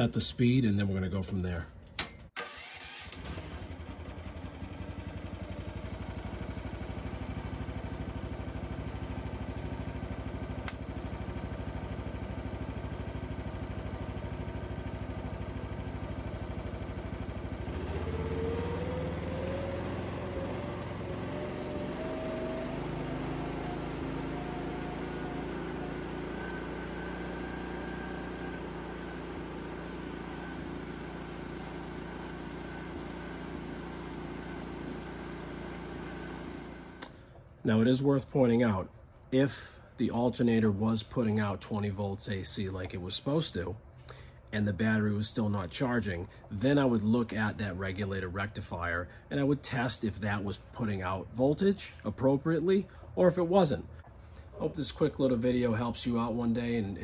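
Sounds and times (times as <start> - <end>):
small engine running: 2.4 - 37.2.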